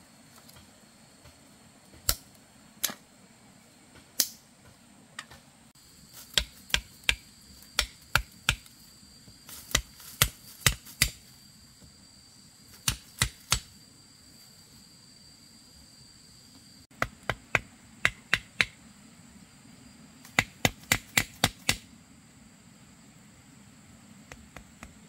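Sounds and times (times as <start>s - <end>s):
machete striking bamboo: 2.0s - 3.0s, 4.2s - 4.4s, 6.2s - 8.7s, 9.6s - 11.3s, 12.8s - 13.7s, 17.0s - 18.8s, 20.3s - 21.9s.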